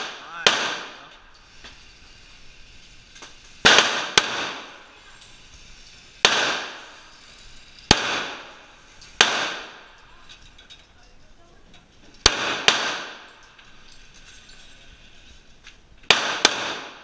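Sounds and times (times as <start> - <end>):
handgun shots echoing indoors: 12.2 - 13.3, 16.1 - 17.0.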